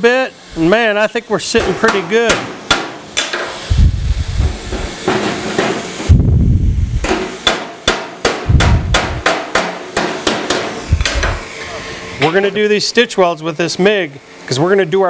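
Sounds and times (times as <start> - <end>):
hammer tapping sheet metal: 1.5 - 3.6, 4.4 - 5.9, 7.0 - 11.4
dull low thumps: 3.7 - 4.9, 6.1 - 7.1, 8.4 - 9.3.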